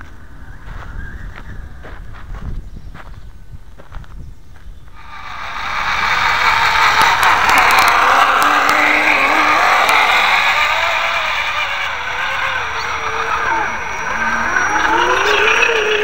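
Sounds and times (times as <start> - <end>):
toy truck motors whining: 5.0 - 16.0.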